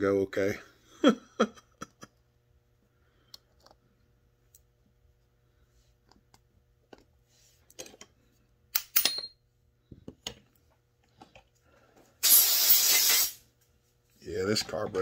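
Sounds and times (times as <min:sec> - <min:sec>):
screwdriver and metal parts clicking: 0:08.7 - 0:09.3.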